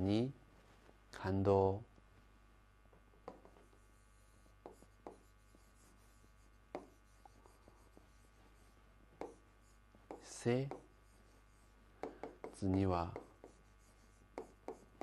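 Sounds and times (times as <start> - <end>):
low steady hum: 0.0 - 15.0
pen writing on board: 3.2 - 15.0.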